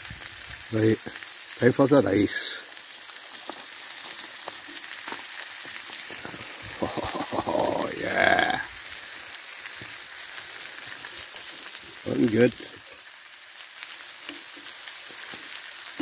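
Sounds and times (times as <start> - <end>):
food sizzling in a pan: 0.0 - 16.0
stirring and scraping in pan: 14.0 - 15.9.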